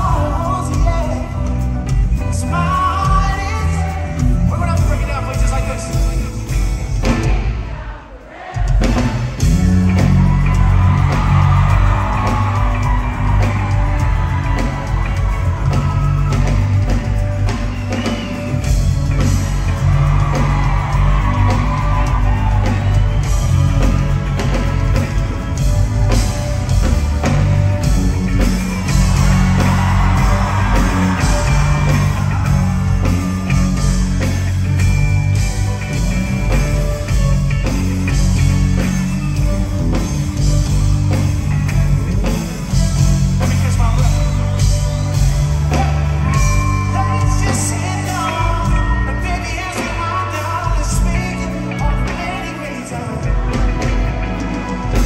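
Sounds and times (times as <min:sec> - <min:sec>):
man singing: 0:00.0 - 0:01.5, 0:02.3 - 0:06.3, 0:46.6 - 0:53.8
live reggae band playing: 0:00.0 - 0:07.8, 0:08.7 - 0:55.0
heavy bass and kick drum: 0:08.8 - 0:17.9, 0:18.5 - 0:48.9.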